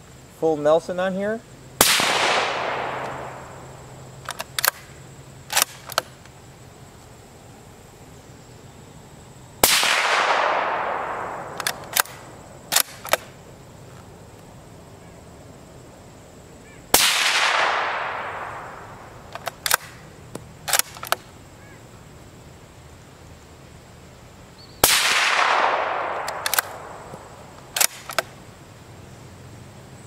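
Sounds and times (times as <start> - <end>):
suppressed rifle shots: 1.8 - 4.9, 5.5 - 6.2, 9.6 - 13.4, 16.9 - 21.2, 24.8 - 28.4
rifle bolt clicks: 4.2 - 4.9, 5.5 - 6.1, 11.5 - 13.3, 19.3 - 21.2, 25.4 - 26.9, 27.7 - 28.3.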